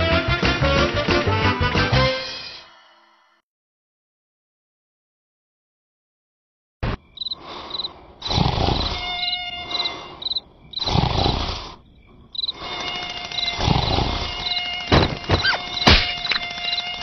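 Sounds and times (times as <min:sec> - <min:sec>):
crickets chirping: 0:06.9 - 0:17.0
loud cartoon snore: 0:08.2 - 0:09.0, 0:10.8 - 0:11.8, 0:13.5 - 0:14.3.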